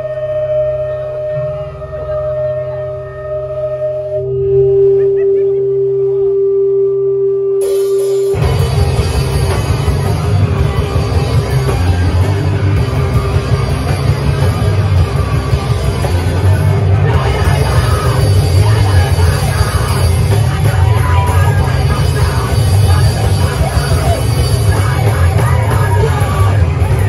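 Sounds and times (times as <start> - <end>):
held note over low drone: 0.0 - 8.9
live rock band: 7.6 - 27.0.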